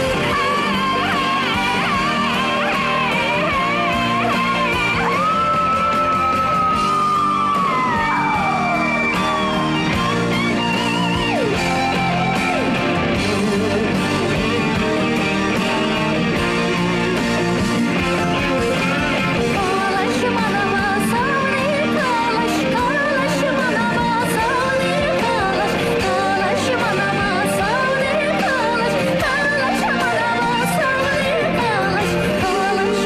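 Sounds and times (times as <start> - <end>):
woman singing: 0.0 - 6.0, 19.4 - 33.0
pop backing music: 0.0 - 33.0.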